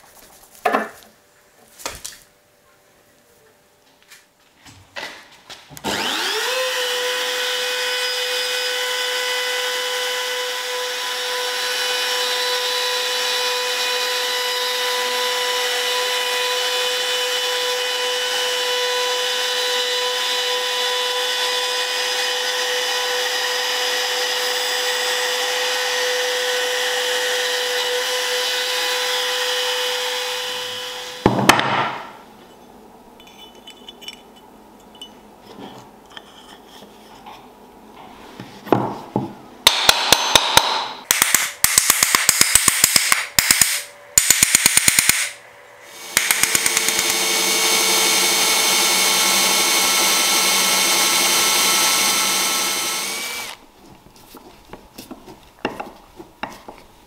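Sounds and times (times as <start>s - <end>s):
trim router whining: 5.8s - 31.2s, 45.8s - 53.6s
faint metal clinks: 33.2s - 35.3s.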